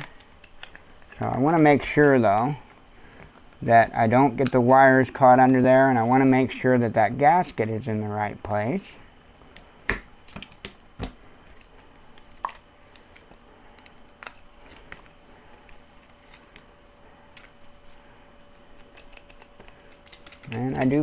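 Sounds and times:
plastic parts clicking and knocking: 18.8s - 21.0s.

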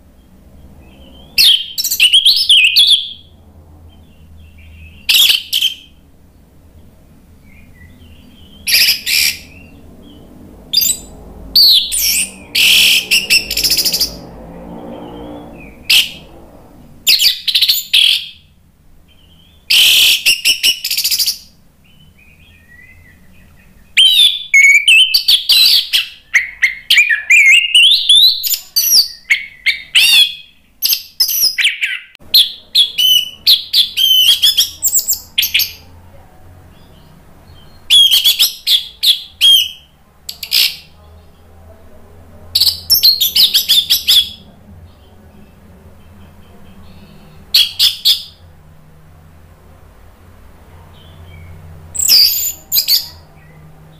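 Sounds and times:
thrush singing: 0.0s - 30.6s.

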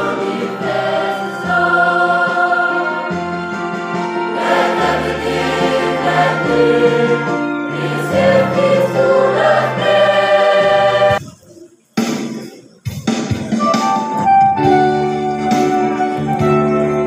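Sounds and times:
choir singing a hymn: 0.0s - 11.2s.

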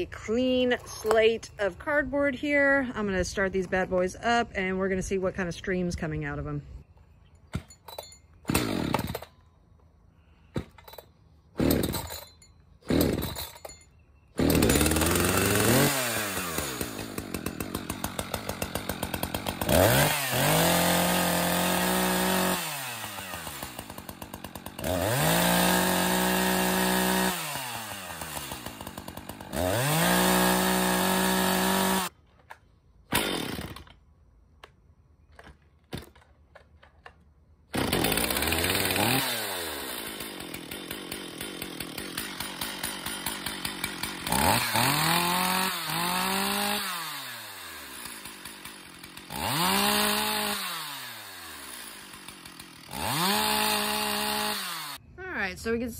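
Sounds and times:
chainsaw engine revving: 8.5s - 9.3s, 10.6s - 12.2s, 12.8s - 13.7s, 14.4s - 32.1s, 33.1s - 34.0s, 37.7s - 55.0s.

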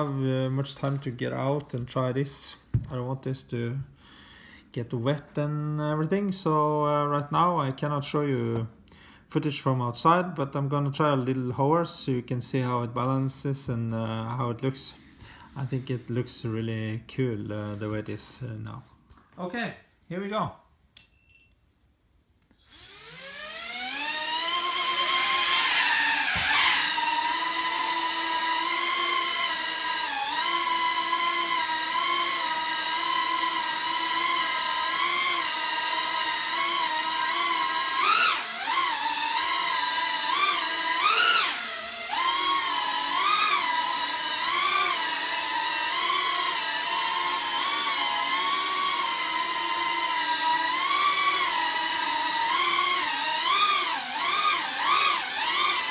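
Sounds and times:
quadcopter propellers whining: 22.7s - 55.9s.

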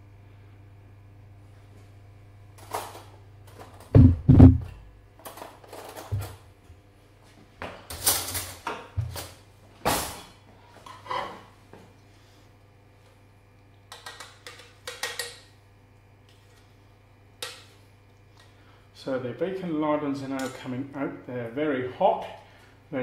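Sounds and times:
steady low hum: 0.0s - 23.0s
heavy knocks: 4.0s - 4.7s.

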